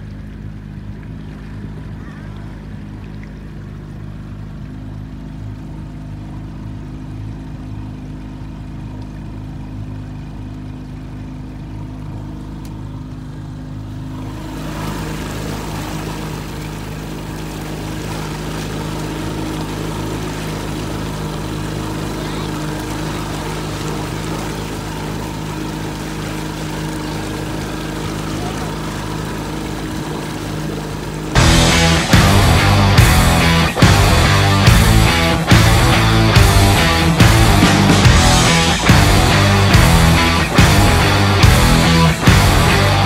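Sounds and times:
outboard motor running: 0:00.0 - 0:43.0
water rushing past hull: 0:00.0 - 0:43.0
loud rushing hiss: 0:31.4 - 0:43.0.

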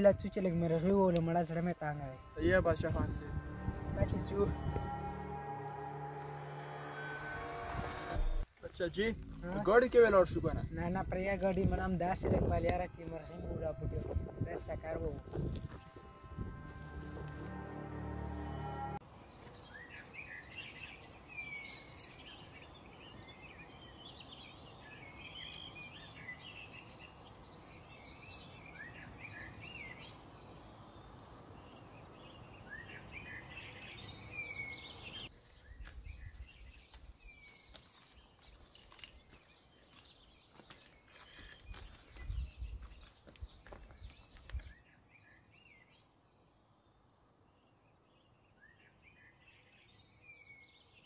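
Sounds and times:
footsteps on stony path: 0:07.7 - 0:10.2, 0:15.3 - 0:17.5, 0:35.3 - 0:44.8
small birds chirping: 0:19.3 - 0:51.0.

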